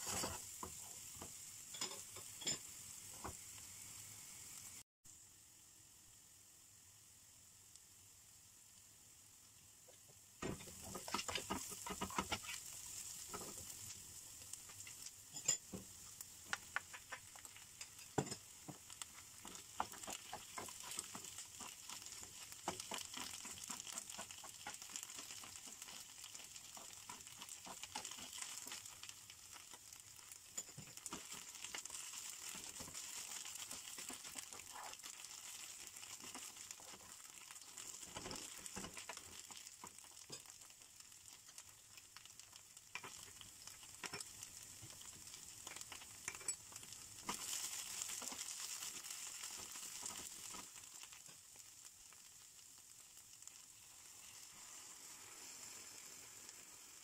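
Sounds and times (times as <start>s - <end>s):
vegetables sizzling in frying pan: 0.0s - 57.0s
spatula tapping and scraping: 10.4s - 13.7s, 14.7s - 29.0s, 30.6s - 40.5s, 42.9s - 45.1s.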